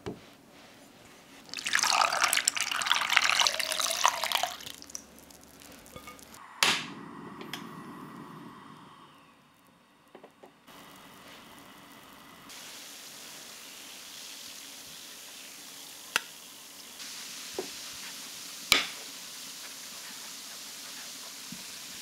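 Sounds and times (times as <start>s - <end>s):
pot boiling with bubbling hiss: 1.1s - 22.0s
sharp pops: 6.6s - 7.0s.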